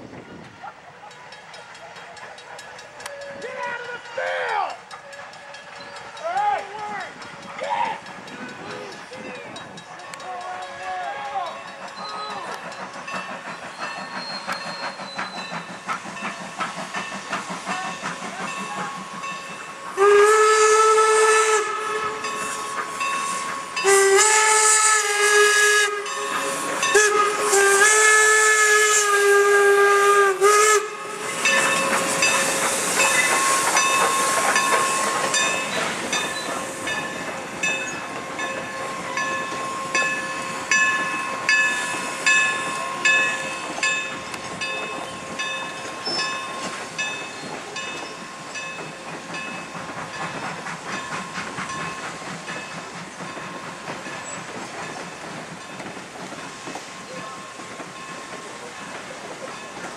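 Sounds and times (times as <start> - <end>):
train clattering past: 0.0 - 59.9
steam hissing: 4.7 - 59.9
steam locomotive whistle: 13.5 - 15.7, 17.6 - 46.8.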